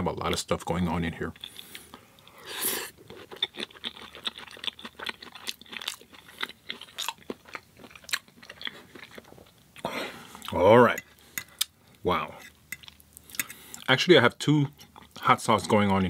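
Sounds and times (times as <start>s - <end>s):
crunchy chewing: 1.3s - 10.6s.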